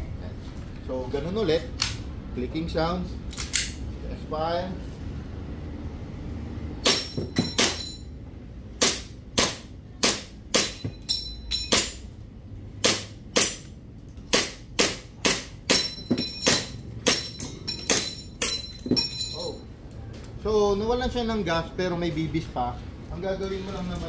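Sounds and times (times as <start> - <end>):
airsoft pistol shots: 12.8 - 13.6.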